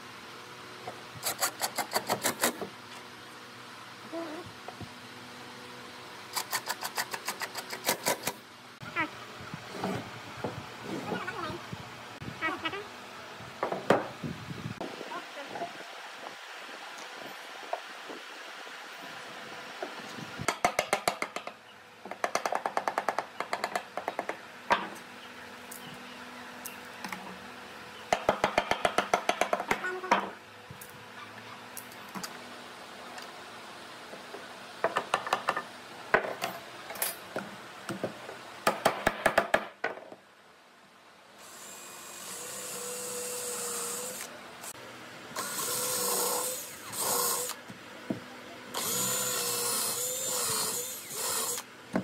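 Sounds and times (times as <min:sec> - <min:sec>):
cordless drill boring wood: 0:41.4 - 0:44.3, 0:45.4 - 0:47.6, 0:48.7 - 0:51.7.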